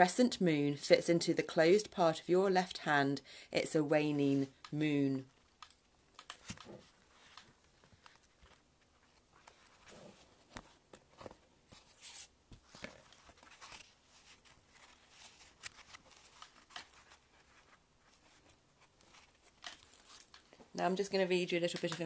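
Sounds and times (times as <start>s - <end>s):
paper rustling: 6.2s - 20.6s.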